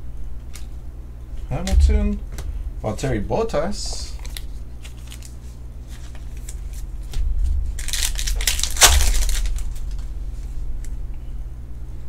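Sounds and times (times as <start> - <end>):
trading cards rustling: 4.0 - 6.9, 7.8 - 10.0.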